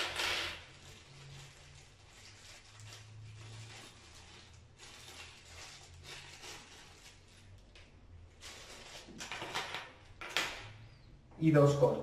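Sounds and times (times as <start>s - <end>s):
plastic bag crinkling: 0.0s - 9.7s.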